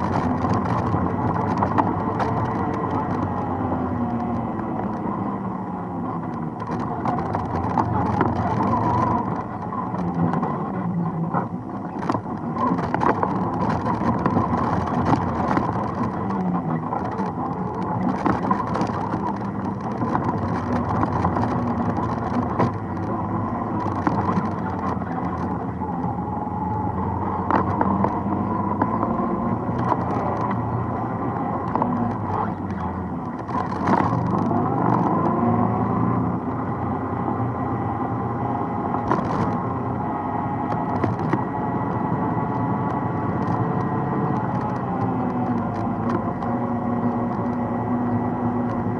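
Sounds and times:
atv engine running: 0.0 - 48.9
knocks and rattles: 11.8 - 25.8, 27.4 - 35.4, 38.9 - 39.6, 40.6 - 41.5.

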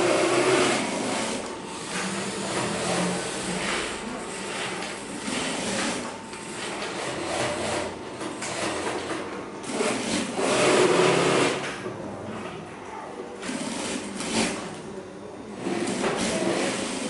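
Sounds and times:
sewing machine stitching: 0.0 - 11.7, 13.4 - 14.8, 15.6 - 17.0.

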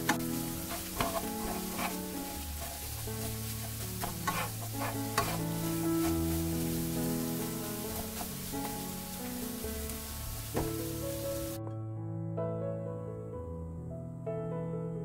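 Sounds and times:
wooden utensils scraping a pan: 0.0 - 11.5
food sizzling in a frying pan: 0.0 - 11.6
soft background music: 0.0 - 15.0.

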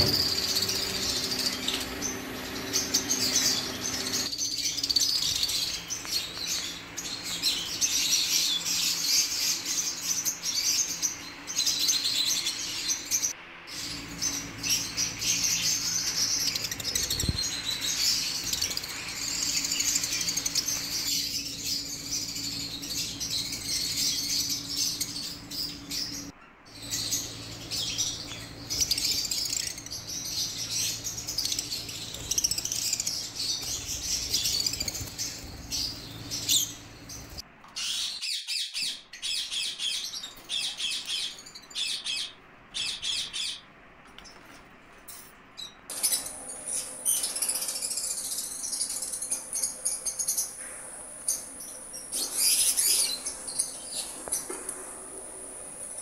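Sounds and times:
parrots chirping and squeaking: 0.0 - 10.3, 45.6 - 50.6.

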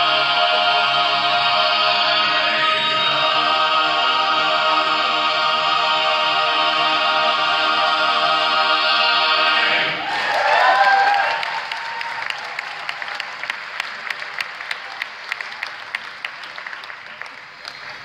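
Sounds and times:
choir holding a chord: 0.0 - 10.3
audience cheering: 10.0 - 16.5
audience applause: 10.0 - 18.0.

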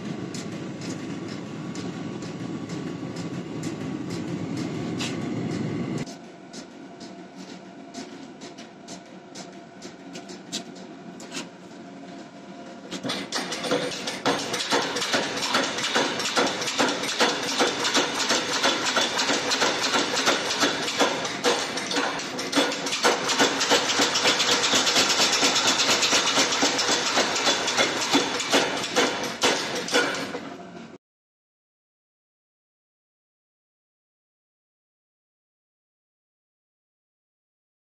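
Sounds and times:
power hammer blows on steel: 13.3 - 30.4.

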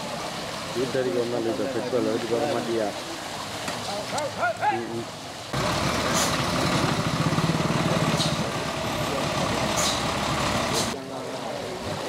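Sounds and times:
diesel bus engine rumbling: 5.6 - 12.0.

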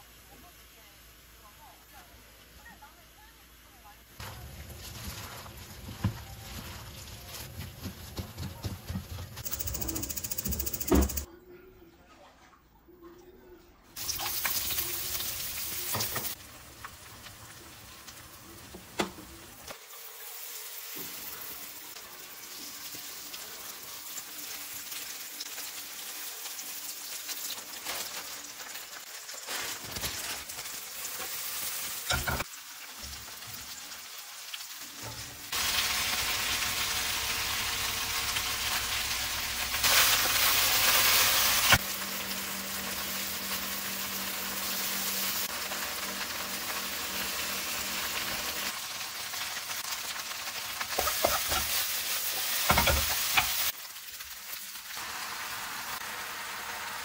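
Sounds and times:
food sizzling in hot oil: 9.4 - 11.3, 14.0 - 57.0.

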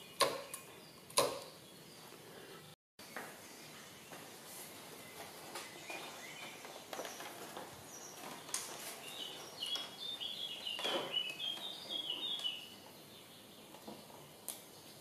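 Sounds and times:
songbird whistling: 9.2 - 12.7.

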